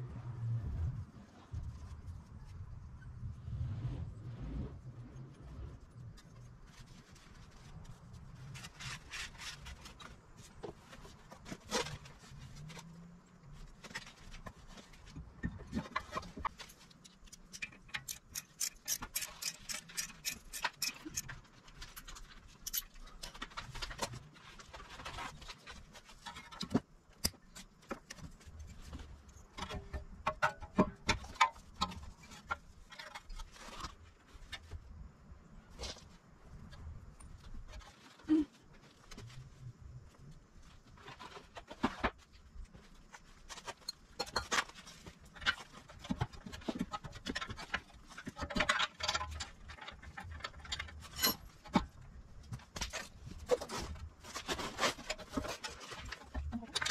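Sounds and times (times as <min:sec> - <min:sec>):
metallic clicks of hand tools: 0:17.0 - 0:21.4, 0:22.0 - 0:23.0.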